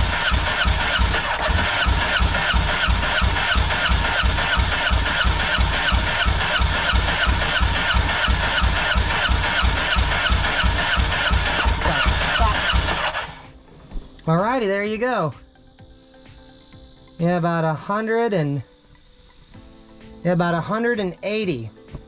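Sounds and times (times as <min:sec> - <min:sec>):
engine cranking on starter: 0:00.0 - 0:13.6.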